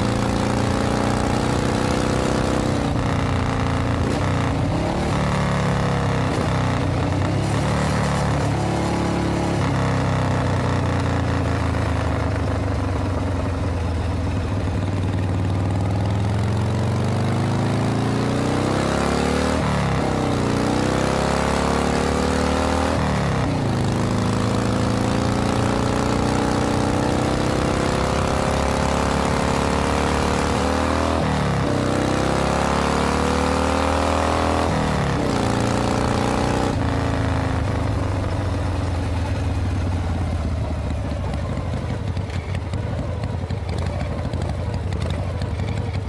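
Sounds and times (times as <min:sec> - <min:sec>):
car engine accelerating through gears: 0:17.2 - 0:37.8.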